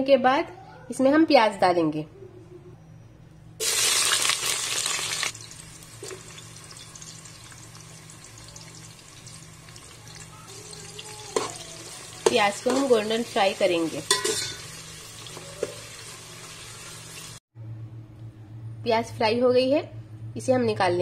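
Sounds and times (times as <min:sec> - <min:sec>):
onions sizzling in hot oil: 0:03.6 - 0:17.4.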